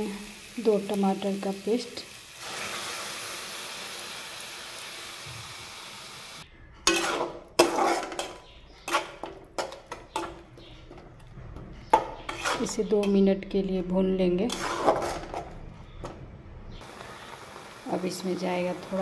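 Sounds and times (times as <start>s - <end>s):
paste hissing in hot oil: 0.0s - 6.4s.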